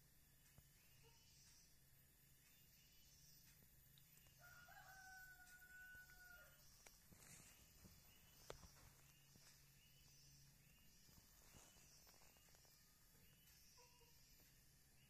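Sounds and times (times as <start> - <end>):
faint ticks: 0.0 - 14.7
rooster crowing faintly: 4.3 - 6.7.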